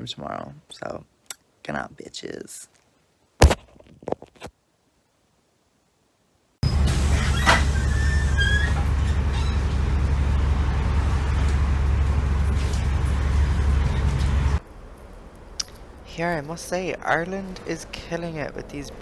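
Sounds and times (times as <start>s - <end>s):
bus engine idling: 6.7s - 14.6s.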